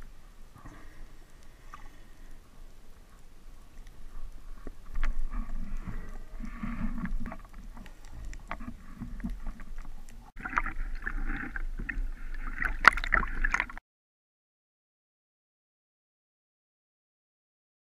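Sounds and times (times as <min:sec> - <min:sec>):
water gurgling underwater: 0:04.2 - 0:13.8.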